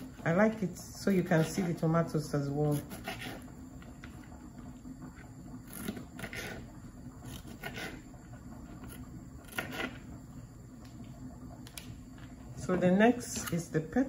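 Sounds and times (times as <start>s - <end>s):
knife slicing tomatoes: 2.7s - 3.4s, 8.9s - 10.0s.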